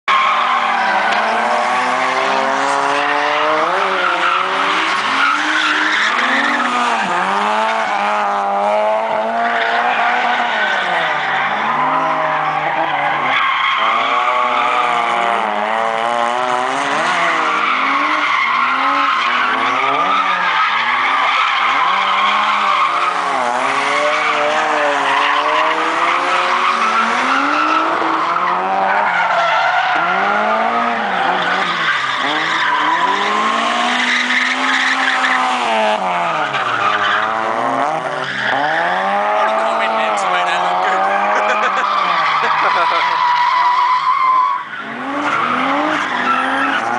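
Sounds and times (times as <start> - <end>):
car engine revving: 0.1 - 46.9
tyres squealing: 16.9 - 46.9.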